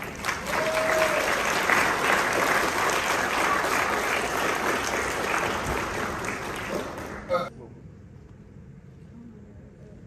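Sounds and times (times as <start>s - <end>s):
crowd applauding: 0.0s - 7.5s
short cheer: 0.3s - 1.6s.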